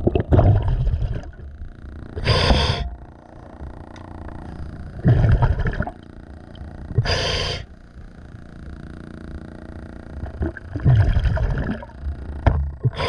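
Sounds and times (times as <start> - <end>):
exhaled bubbles underwater: 0.0 - 7.6, 10.2 - 13.0
regulator inhale hiss: 2.2 - 3.0, 7.0 - 7.8.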